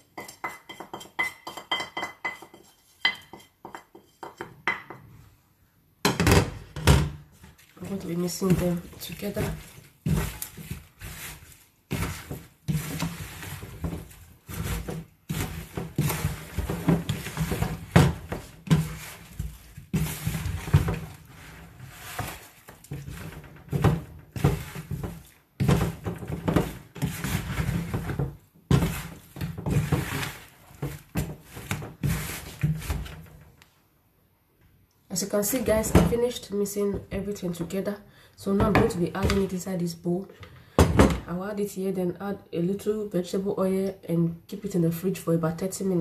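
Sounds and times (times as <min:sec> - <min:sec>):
spoon scraping plastic bowl: 0:07.4 - 0:33.2.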